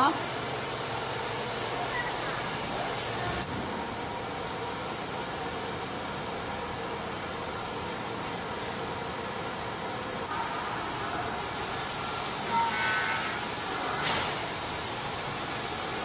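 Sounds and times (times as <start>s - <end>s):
workshop machinery hiss and hum: 0.0s - 16.0s.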